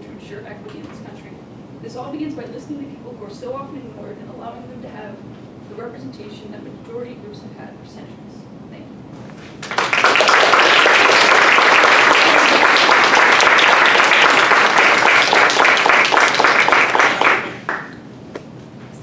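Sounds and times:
audience applauding: 9.6 - 18.0.

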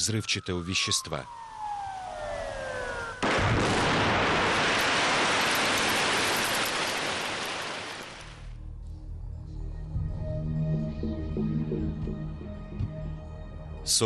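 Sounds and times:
explosion roar: 3.2 - 8.2.

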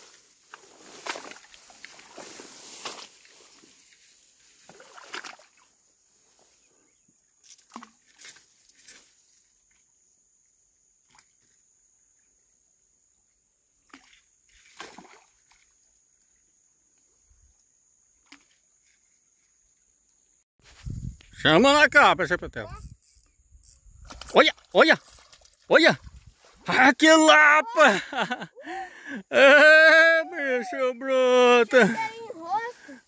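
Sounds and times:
wet grass rustling: 0.0 - 6.7, 23.1 - 26.8, 29.3 - 33.0
soft water splashes: 4.6 - 5.8, 13.8 - 16.4.

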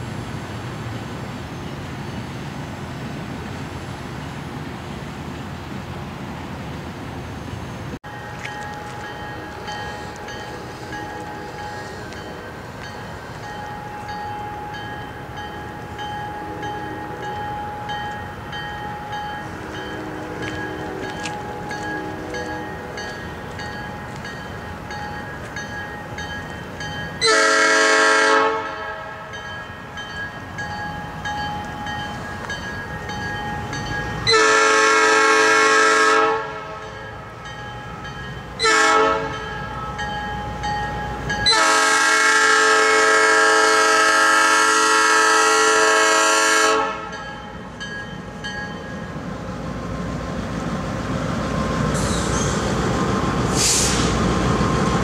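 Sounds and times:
train rumble: 0.0 - 55.0
crossing bell dinging: 8.0 - 35.3, 36.4 - 42.8, 46.8 - 49.4
locomotive air horn blasts: 27.2 - 29.4, 34.3 - 36.9, 38.6 - 39.5, 41.4 - 47.2.

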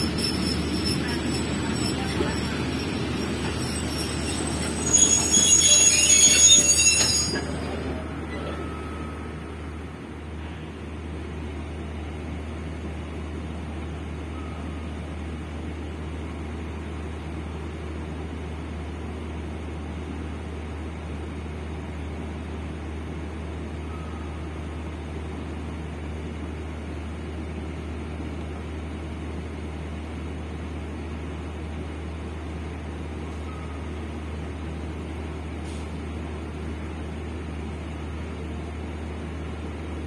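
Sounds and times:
faint short squeak: 0.0 - 9.3, 33.3 - 34.1
train diesel engine drone: 0.0 - 40.0.

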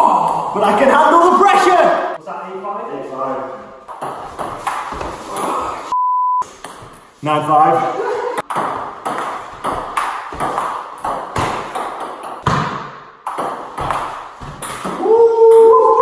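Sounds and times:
man's voice: 0.0 - 3.6.

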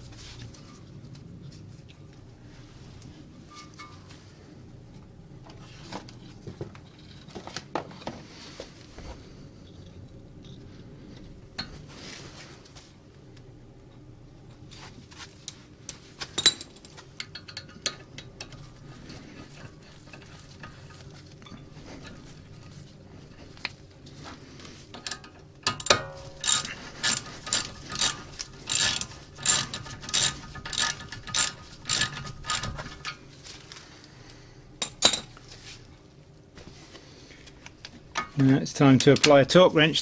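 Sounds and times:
metal clinks: 25.0 - 33.2
socket ratchet strokes: 25.0 - 33.2.

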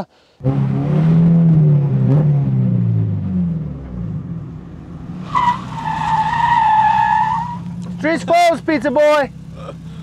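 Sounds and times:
car engine revving: 0.4 - 10.0
supercharger belt squealing: 5.2 - 9.0.

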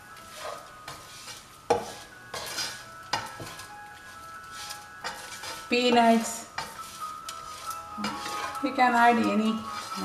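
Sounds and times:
light sizzle: 0.0 - 10.0
spatula scraping frying pan: 0.0 - 10.0
spatula knocking against pan: 1.7 - 3.6.

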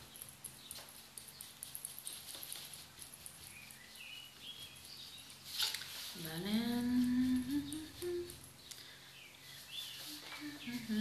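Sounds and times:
fingers ticking and rubbing: 0.0 - 5.6
bird chirps: 3.2 - 5.4.

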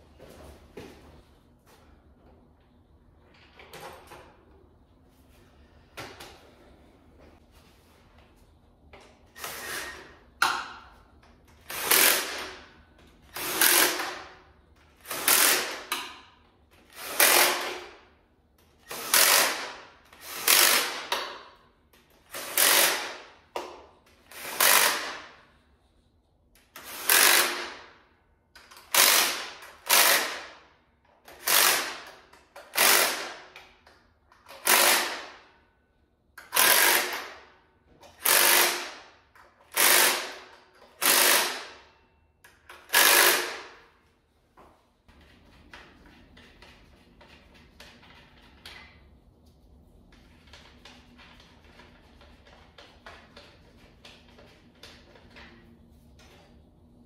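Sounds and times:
impact driver running: 22.3 - 23.2, 28.9 - 30.6, 36.5 - 37.4, 38.2 - 39.0, 39.7 - 41.8, 42.8 - 43.8.

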